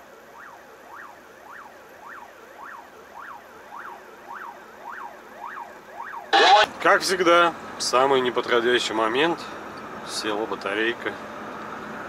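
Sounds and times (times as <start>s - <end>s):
ambulance siren wailing: 0.0s - 6.8s.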